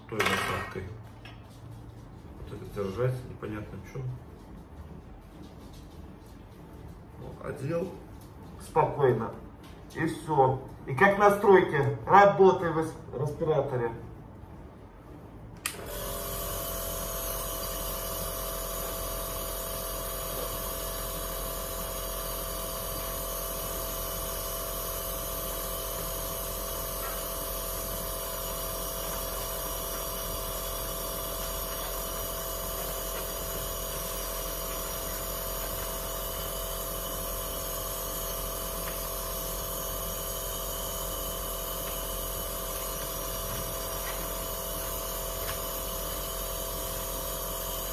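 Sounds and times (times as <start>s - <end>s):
nebulizer motor hum: 15.6s - 47.9s.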